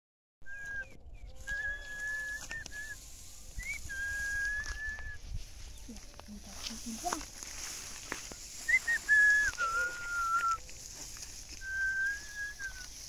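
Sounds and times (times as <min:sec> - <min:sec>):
long high whistled notes: 0:00.5 - 0:05.3, 0:08.5 - 0:10.6.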